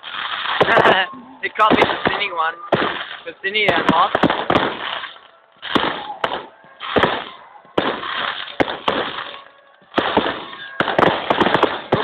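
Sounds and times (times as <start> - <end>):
fireworks bangs echoing: 0.0 - 12.0.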